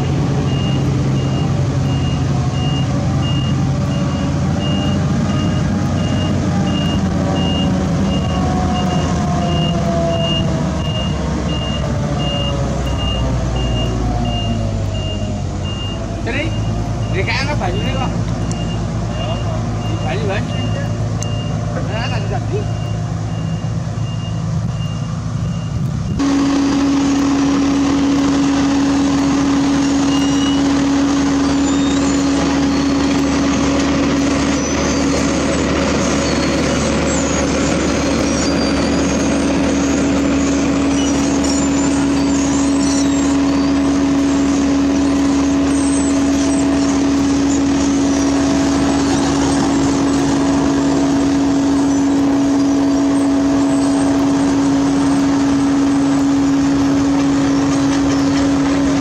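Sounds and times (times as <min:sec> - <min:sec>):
reversing alarm beeping: 0:00.0 - 0:33.7
paving machinery engine hum: 0:00.0 - 0:59.0.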